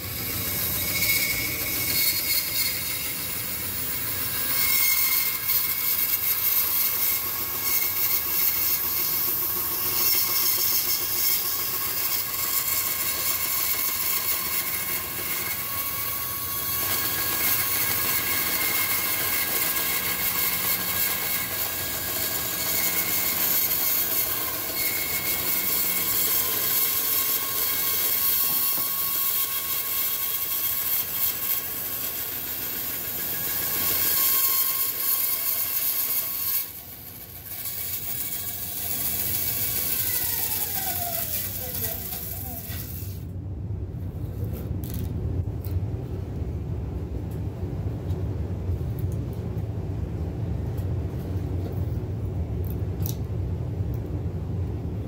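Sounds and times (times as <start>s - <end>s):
bandsaw cutting wood: 0.0s - 43.2s.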